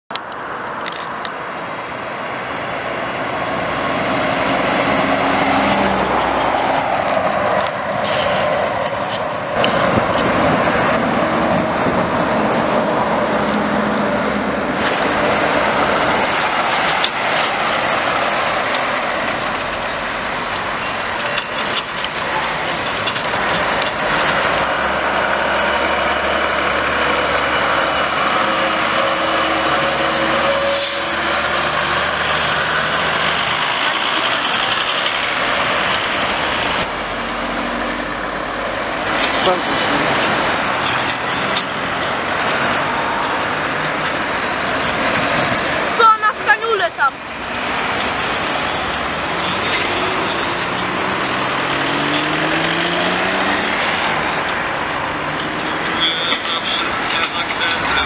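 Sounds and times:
tyre and road noise: 0.1s - 58.0s
trucks driving past: 0.2s - 58.0s.

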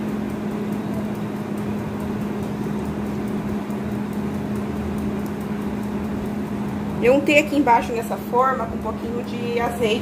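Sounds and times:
motor humming: 0.0s - 10.0s.

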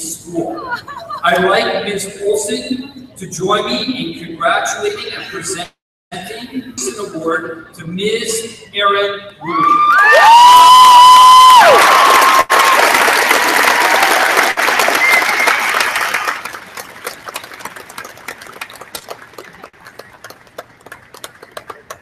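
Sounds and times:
loud whoop: 9.5s - 13.0s
audience cheering: 9.5s - 17.8s
audience applauding: 10.0s - 22.0s.

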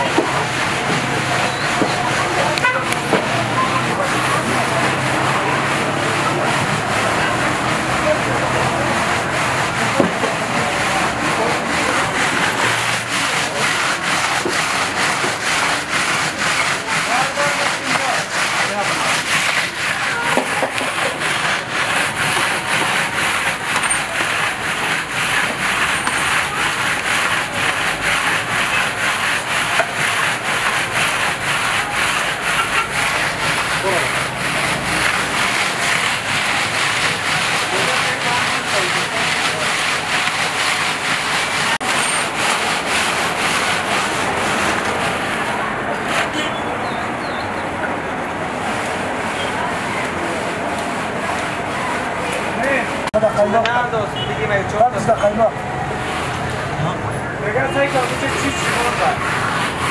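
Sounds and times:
metal pot grinding against ice: 3.5s - 45.5s, 57.5s - 59.9s.

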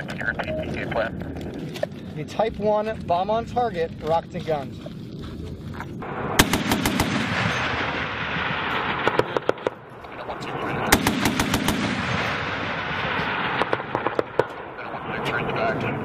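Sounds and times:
helicopter cannon bursts: 6.0s - 9.7s, 10.9s - 14.5s.

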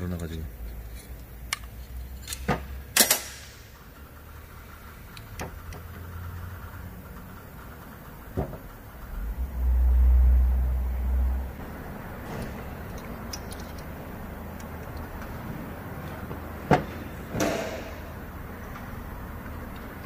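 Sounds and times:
low rumble: 7.8s - 16.0s
sharp clack: 17.3s - 18.2s.

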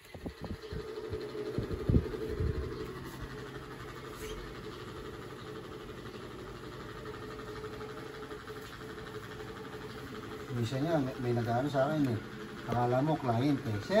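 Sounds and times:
low mechanical hum: 0.0s - 14.0s.

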